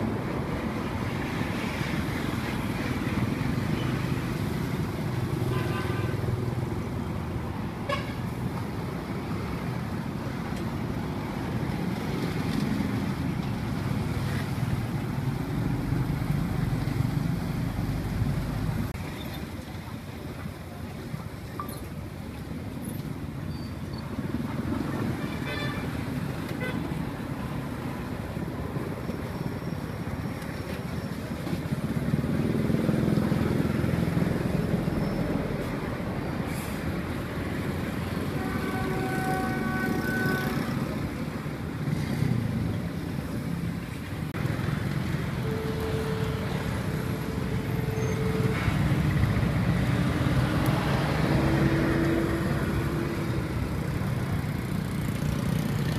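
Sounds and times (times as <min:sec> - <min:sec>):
street traffic: 0:00.0 - 0:55.9
vehicle horn: 0:07.9 - 0:08.2, 0:25.2 - 0:26.0, 0:38.3 - 0:40.8, 0:45.4 - 0:49.1.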